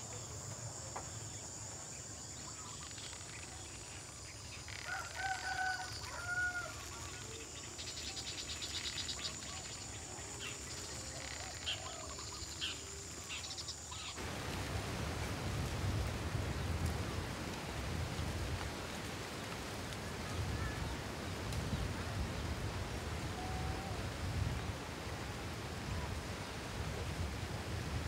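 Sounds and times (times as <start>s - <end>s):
high insect trill: 0.0s - 14.3s
steady hiss: 5.7s - 28.0s.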